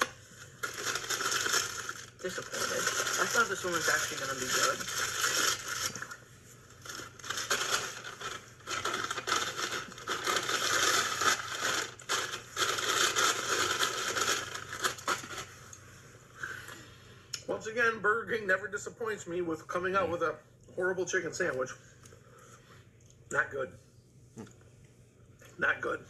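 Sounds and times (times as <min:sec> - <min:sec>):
paper wrapper crinkling: 0:00.0 - 0:15.8.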